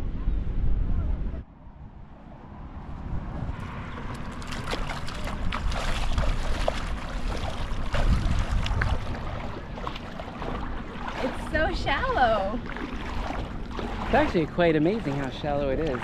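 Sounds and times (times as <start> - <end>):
wind rumbling on microphone: 0.0 - 16.0
feet splashing through shallow water: 3.6 - 16.0.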